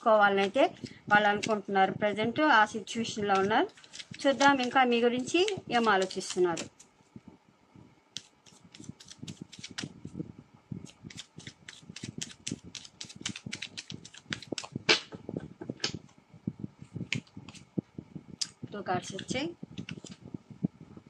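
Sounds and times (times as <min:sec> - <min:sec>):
cards being shuffled: 0:01.3 - 0:01.6, 0:03.3 - 0:07.2, 0:08.2 - 0:10.0, 0:10.8 - 0:16.0, 0:19.1 - 0:20.2.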